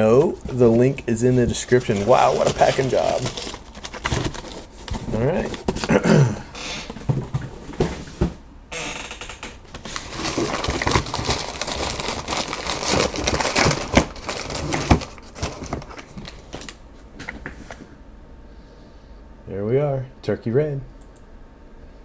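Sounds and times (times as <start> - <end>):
packing paper rustling and crackling: 0.0 - 6.0, 9.7 - 17.8.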